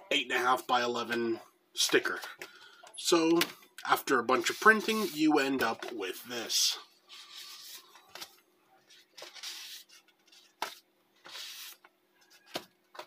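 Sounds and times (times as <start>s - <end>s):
sticker paper rustling: 4.4s - 6.2s.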